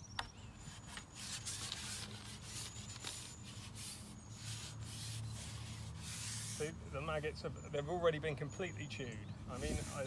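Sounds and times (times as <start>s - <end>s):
rubbing and rustling: 0.6s - 6.8s, 9.5s - 10.0s.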